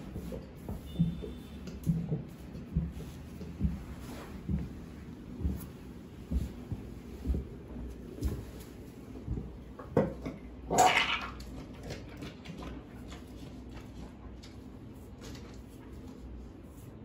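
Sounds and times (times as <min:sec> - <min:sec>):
dog retching: 0:10.6 - 0:12.2.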